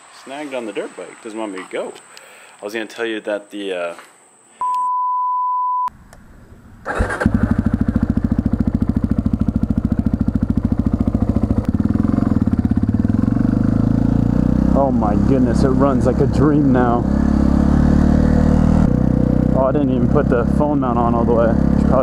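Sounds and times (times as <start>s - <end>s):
steady beep tone: 4.6s - 5.9s
motorcycle engine running: 6.8s - 22.0s.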